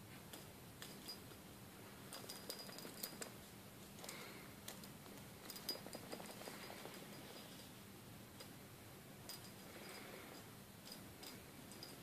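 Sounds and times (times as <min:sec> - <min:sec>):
small jingle bell tinkling: 0:00.8 - 0:01.4, 0:02.1 - 0:03.4, 0:04.0 - 0:07.8, 0:09.2 - 0:12.0.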